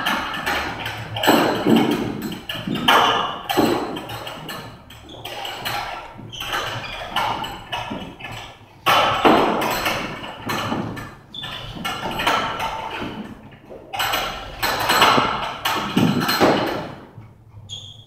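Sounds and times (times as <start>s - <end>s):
battle rope slapping floor: 0.0s - 17.2s.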